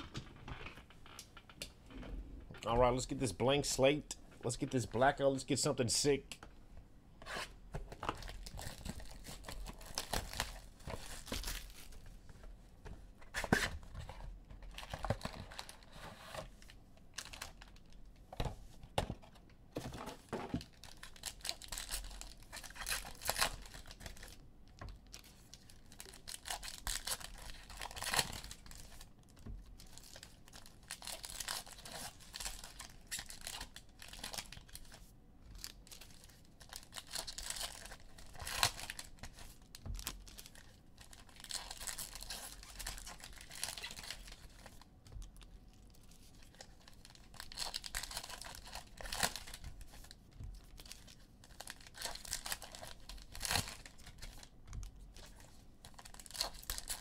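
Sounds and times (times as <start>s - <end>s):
foil wrappers crinkling: 20.6s - 24.4s, 25.1s - 29.1s, 29.7s - 35.0s, 35.6s - 57.0s.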